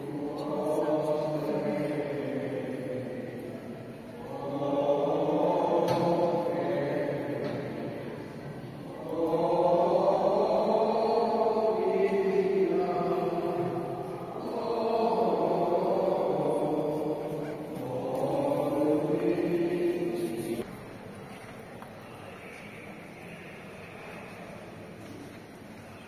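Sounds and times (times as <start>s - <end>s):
group of voices chanting: 0.0s - 20.6s.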